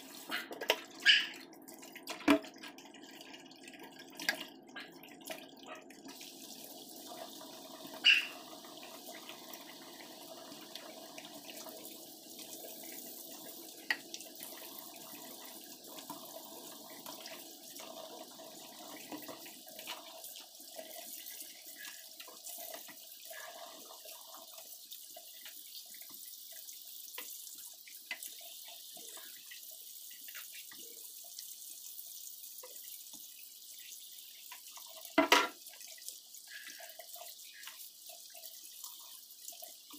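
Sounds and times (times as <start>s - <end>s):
tap running into steel sink: 35.2s - 35.6s.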